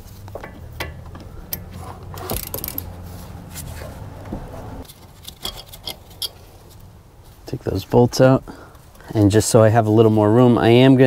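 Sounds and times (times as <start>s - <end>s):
ratchet clicks and metal scrapes: 0.3s - 3.7s, 4.8s - 6.5s.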